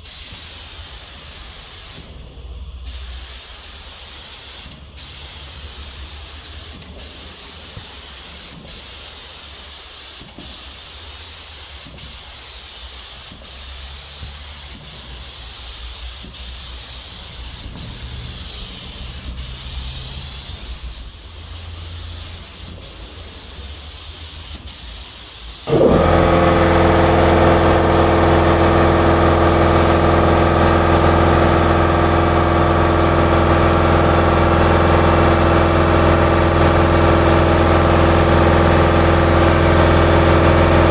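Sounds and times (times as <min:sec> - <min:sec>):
spray gun hissing: 0:00.0 - 0:02.1, 0:02.9 - 0:40.7
loud machine hum: 0:25.7 - 0:40.9.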